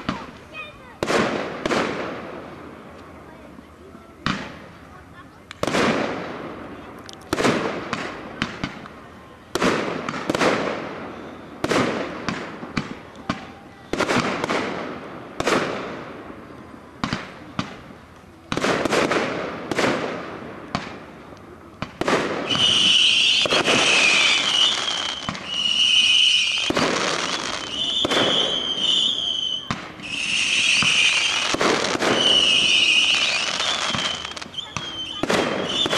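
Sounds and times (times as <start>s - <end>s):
fireworks bursting with echo: 0.0s - 35.9s
high steady whistle: 22.5s - 31.4s, 32.1s - 35.9s.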